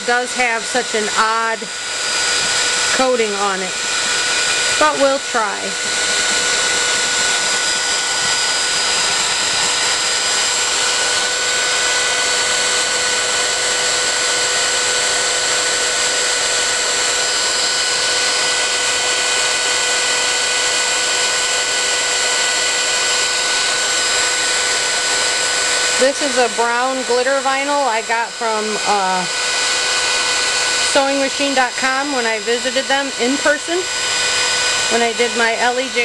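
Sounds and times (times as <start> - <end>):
hot-air blower running: 0.0 - 36.0.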